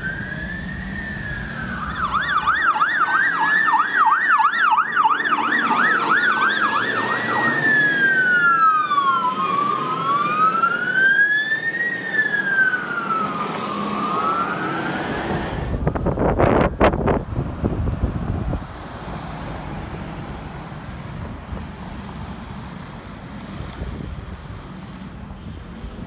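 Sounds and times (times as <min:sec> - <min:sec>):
fast yelping siren: 0:00.0 - 0:15.6
wailing sirens: 0:00.0 - 0:18.1.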